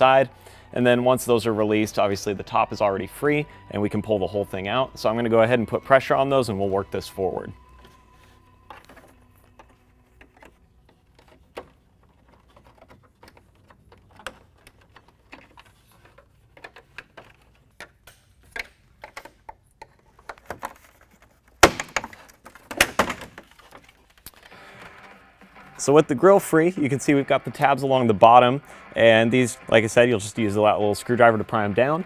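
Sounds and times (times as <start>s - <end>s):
loud snaps and knocks: 21.6s - 24.4s.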